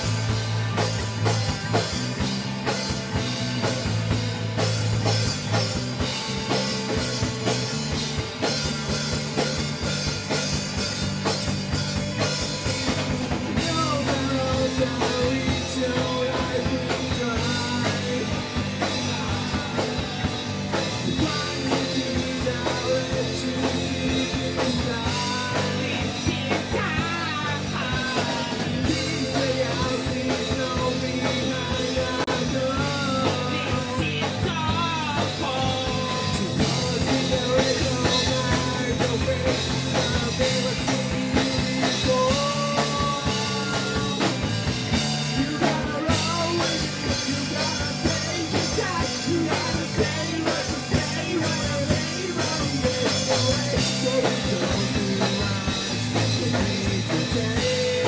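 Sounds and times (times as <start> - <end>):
drum kit: 0.0 - 58.0
rock band playing live: 0.0 - 58.0
person singing: 12.9 - 58.0.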